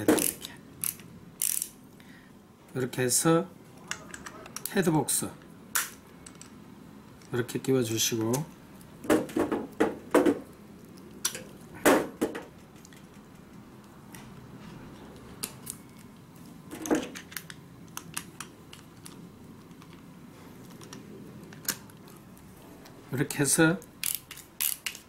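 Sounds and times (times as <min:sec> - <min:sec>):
clicks and knocks of tool parts: 0:16.7 - 0:22.2.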